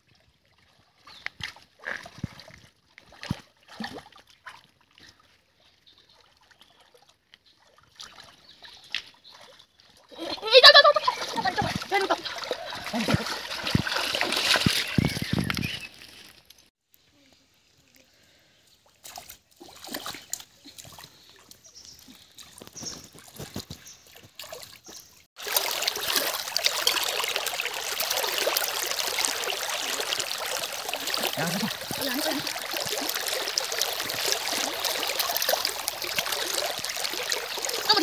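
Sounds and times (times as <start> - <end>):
steps in shallow water: 0.0 - 16.7, 18.6 - 38.0
trickling river water: 0.0 - 38.0
hands splashing in water: 11.1 - 16.1, 19.0 - 38.0.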